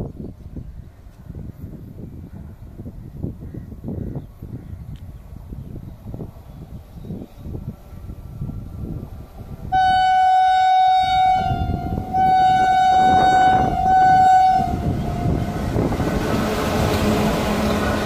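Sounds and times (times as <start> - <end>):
train rumbling on rails: 0.0 - 18.0
train horn blasts: 9.7 - 18.0.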